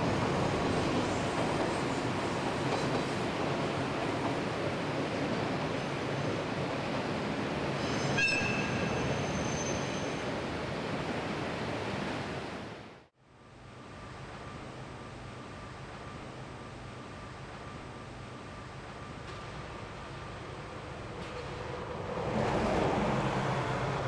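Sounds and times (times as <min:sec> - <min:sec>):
train rumbling over bridge: 0:00.0 - 0:12.8, 0:13.5 - 0:24.0
high wheel squeal: 0:07.8 - 0:10.2.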